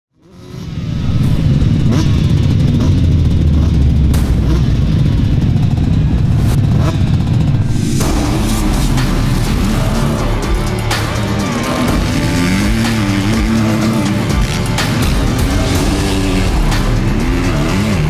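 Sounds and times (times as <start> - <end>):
motocross engines revving: 0.2 - 18.0.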